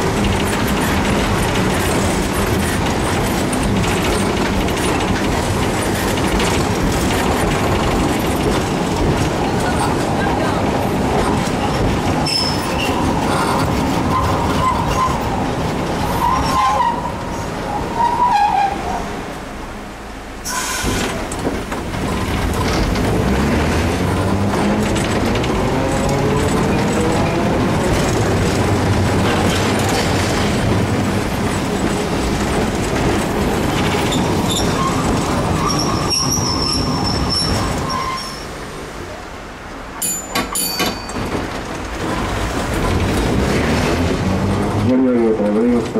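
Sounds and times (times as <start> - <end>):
tram wheels rumbling on rail: 0.0 - 45.9
high squeal: 12.2 - 13.0, 34.1 - 38.6.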